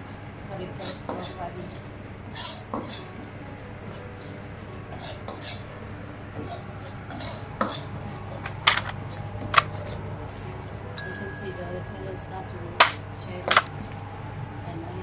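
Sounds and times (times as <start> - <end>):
ladle scraping a wok: 0.8 - 3.1, 4.9 - 5.7.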